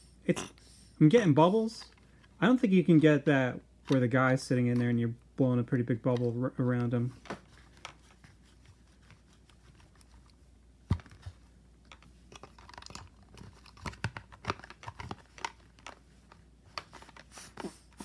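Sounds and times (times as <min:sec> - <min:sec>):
plastic toys clicking: 0:11.9 - 0:16.0.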